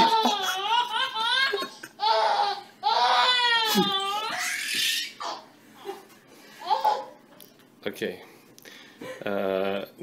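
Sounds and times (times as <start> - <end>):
baby laughing: 0.0 - 6.0.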